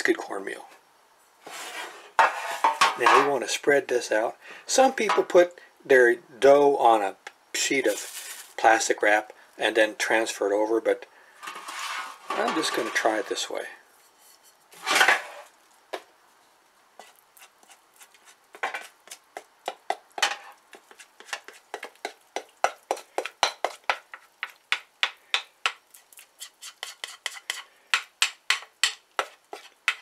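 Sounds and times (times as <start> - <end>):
spatula scraping mixing bowl: 11.4 - 13.4, 17.0 - 24.5, 25.9 - 27.7, 28.5 - 30.0.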